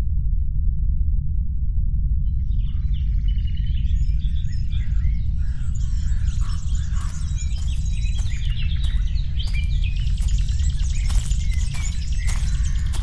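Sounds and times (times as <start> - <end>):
steady low rumble: 0.0 - 13.0
small birds chirping: 2.7 - 13.0.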